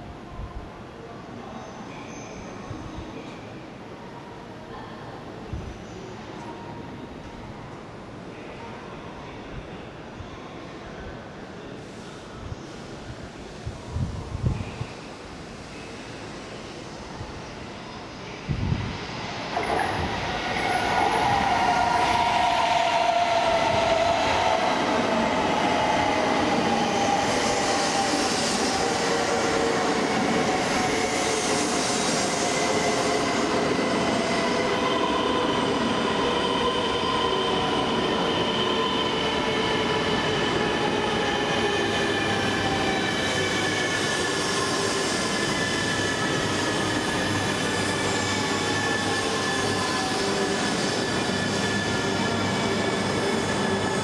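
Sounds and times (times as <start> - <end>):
train rolling past: 12.8 - 54.0.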